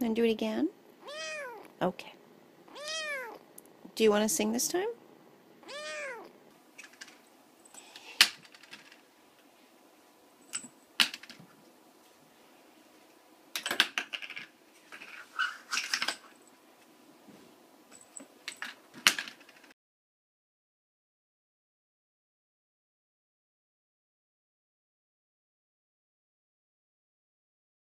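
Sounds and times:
plastic caps clattering on wooden floor: 8.2s - 9.0s, 10.5s - 11.4s, 13.6s - 16.3s, 18.5s - 19.7s.

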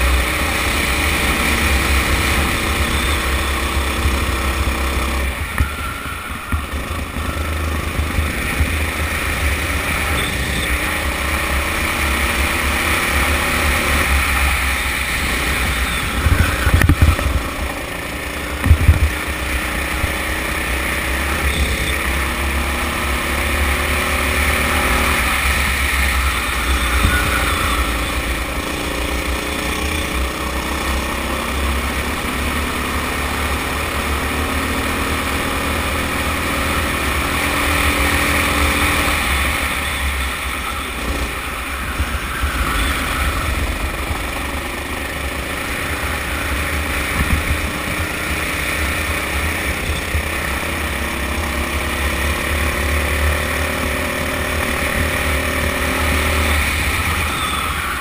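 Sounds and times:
go-kart engine revving: 0.0s - 58.0s
wind rumble on microphone: 15.6s - 17.6s, 18.6s - 19.4s, 47.0s - 48.0s.

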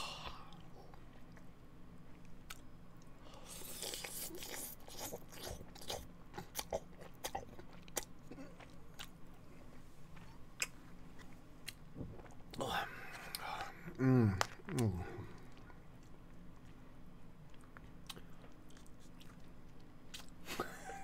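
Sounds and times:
noodles slurped and chewed: 3.4s - 9.1s.

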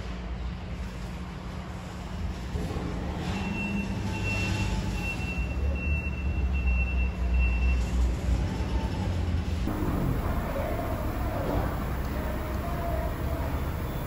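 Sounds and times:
diesel truck engine idling: 9.7s - 14.0s.

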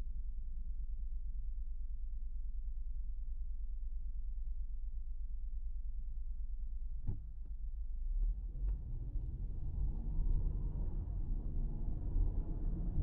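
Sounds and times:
car engine and road rumble: 0.0s - 13.0s.

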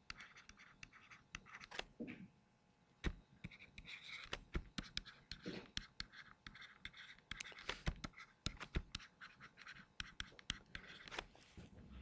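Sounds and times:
stylus tapping on tablet screen: 3.0s - 11.2s.

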